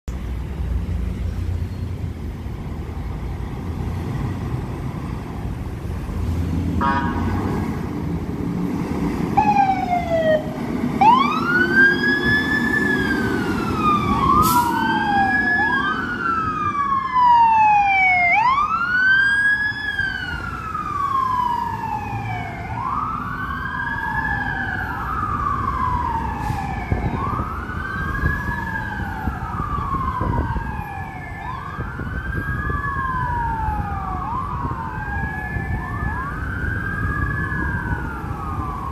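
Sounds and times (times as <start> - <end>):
city traffic rumble: 0.0 - 38.9
second siren: 6.8 - 7.7, 9.4 - 38.9
fire truck siren wailing: 6.8 - 8.6, 9.2 - 38.9.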